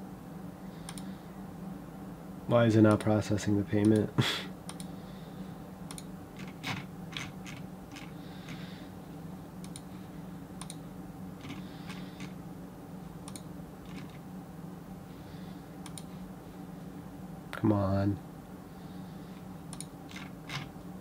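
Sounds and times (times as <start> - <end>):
steady low hum: 0.0 - 21.0
keyboard and mouse clicks: 19.7 - 20.7.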